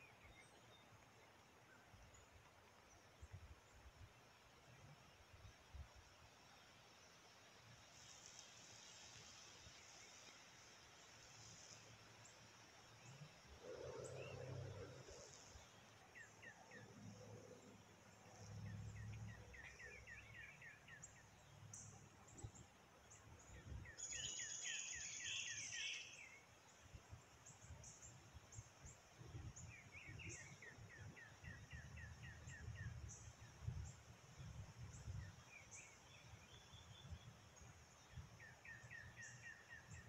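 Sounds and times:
faint low rumble: 0:13.0 - 0:20.5.

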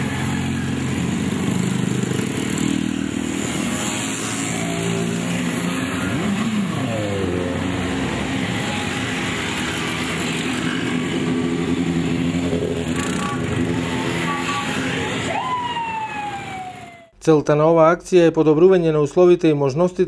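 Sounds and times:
motorcycles passing by: 0:00.0 - 0:17.1.

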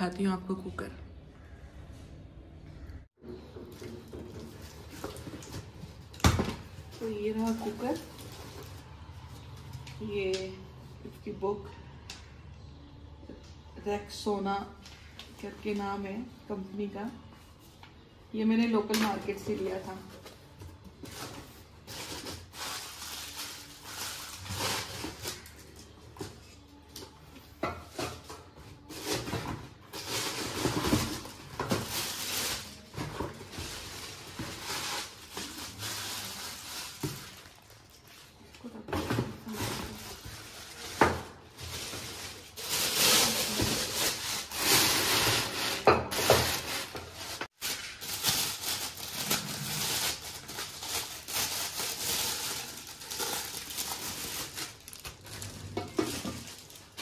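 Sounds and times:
plastic wrapping crinkling: 0:03.4 - 0:10.0, 0:19.0 - 0:27.2, 0:28.8 - 0:57.0.

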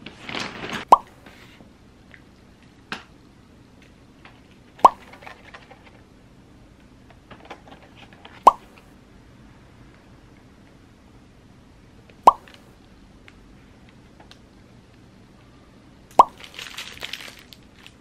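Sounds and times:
plastic packaging crinkling: 0:00.0 - 0:00.9, 0:16.3 - 0:18.0
short bubbly pop: 0:00.9 - 0:01.2, 0:04.8 - 0:05.1, 0:08.4 - 0:08.7, 0:12.2 - 0:12.6, 0:16.1 - 0:16.4.

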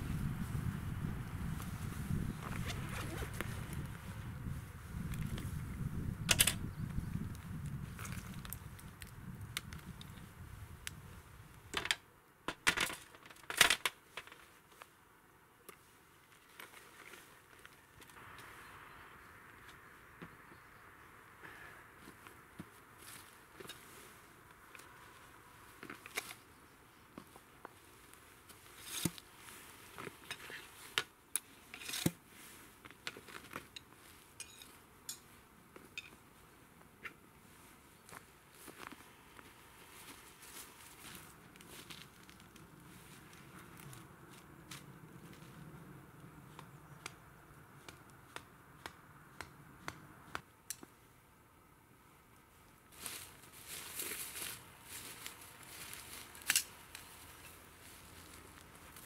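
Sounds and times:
rustling: 0:22.0 - 0:45.7, 0:52.9 - 0:59.0.

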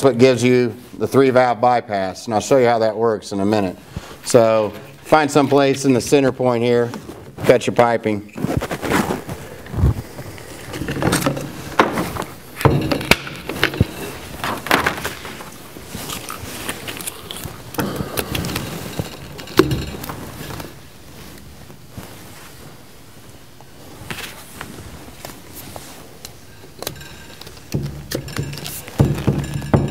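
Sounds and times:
sharp clicks and knocks: 0:10.7 - 0:15.4, 0:17.8 - 0:20.7, 0:26.7 - 0:29.9.

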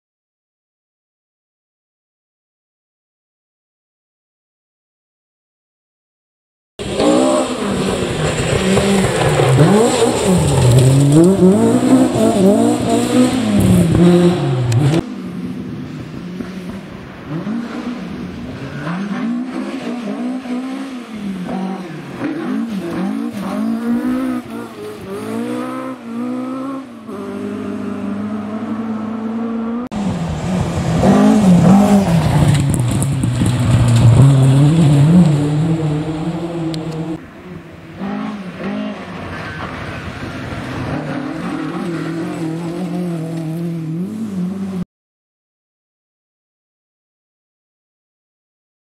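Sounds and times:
rally car engine revving: 0:06.8 - 0:44.8.

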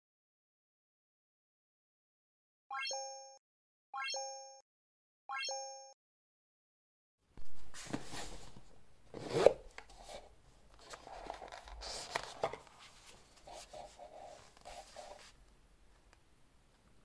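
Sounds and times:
rubbing and rustling: 0:07.5 - 0:15.4.

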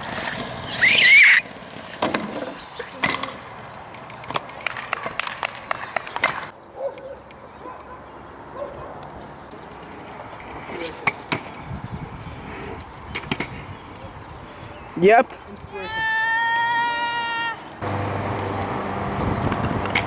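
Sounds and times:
scooter wheels rolling on asphalt: 0:00.0 - 0:20.0
scooter deck clacking on road: 0:01.6 - 0:08.0, 0:13.1 - 0:13.6, 0:17.8 - 0:20.0
high-pitched cry: 0:15.7 - 0:17.7.

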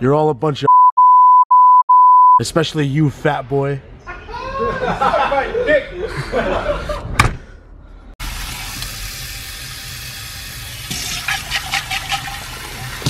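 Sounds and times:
voices and laughter: 0:04.1 - 0:07.2
tap water running into sink: 0:08.2 - 0:13.0.

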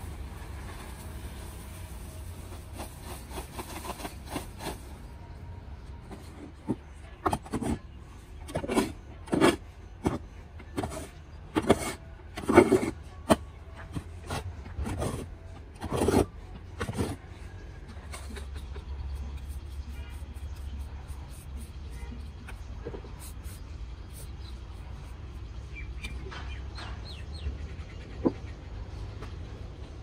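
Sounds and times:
shovel scraping dry cement mix: 0:00.5 - 0:05.0, 0:06.0 - 0:17.3, 0:18.0 - 0:25.2.

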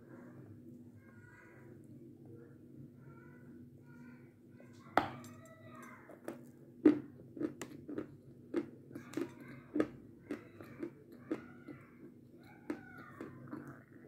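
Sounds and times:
crunchy chewing: 0:06.2 - 0:14.0.

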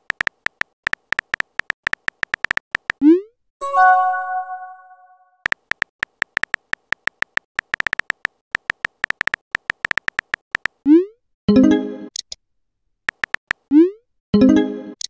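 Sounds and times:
notification chime: 0:03.6 - 0:05.2
phone keyboard tap clicks: 0:05.5 - 0:10.8, 0:13.1 - 0:13.6.

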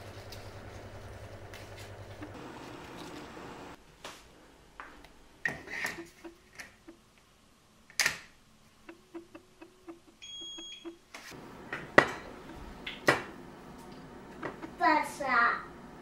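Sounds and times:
steady hum: 0:00.0 - 0:07.8, 0:08.4 - 0:16.0
hob touch control beeps: 0:08.9 - 0:11.0.

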